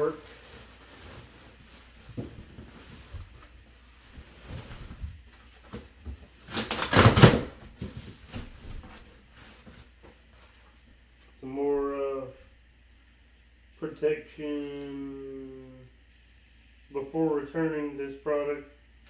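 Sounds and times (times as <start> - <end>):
plastic packaging rustling: 0.0 - 5.7.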